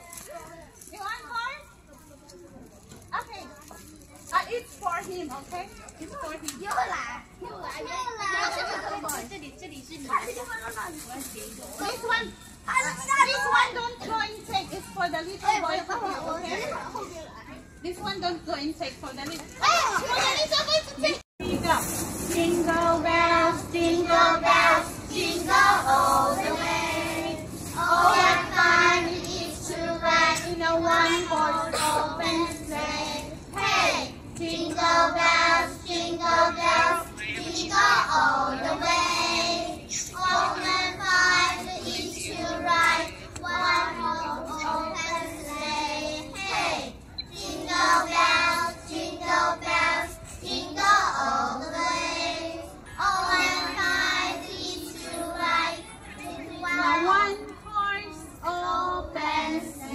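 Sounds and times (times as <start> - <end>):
children singing in unison: 22.6 - 56.8.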